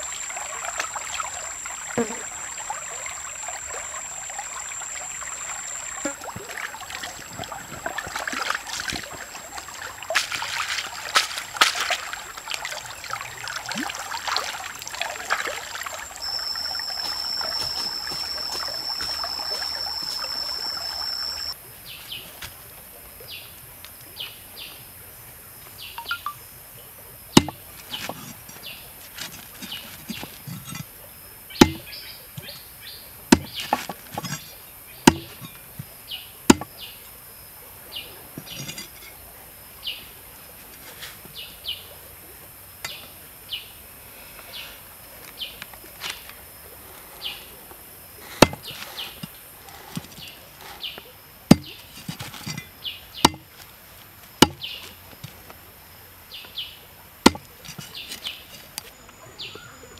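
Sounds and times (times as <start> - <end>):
high bird chirps: 16.0 - 21.6, 26.0 - 26.4
cleaver chopping on wooden block: 27.4 - 28.2, 31.6 - 31.9, 33.3 - 34.4, 35.1 - 35.5, 36.5 - 36.7, 48.4 - 49.2, 51.5 - 53.5, 54.4 - 54.7, 57.3 - 57.9.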